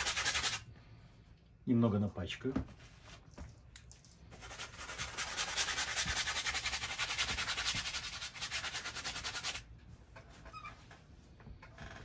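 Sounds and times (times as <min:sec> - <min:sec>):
brush scrubbing paint on canvas: 0:04.3 - 0:09.6.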